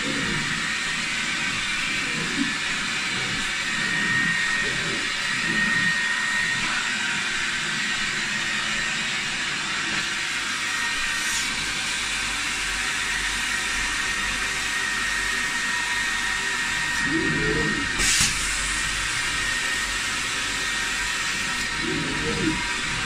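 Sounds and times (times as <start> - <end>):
vacuum whining: 0.0 - 23.0
air and spray hissing: 17.9 - 18.9.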